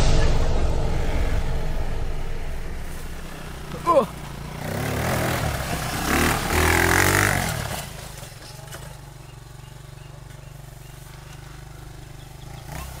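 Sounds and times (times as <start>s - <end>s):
quad bike engine revving: 3.3s - 13.0s.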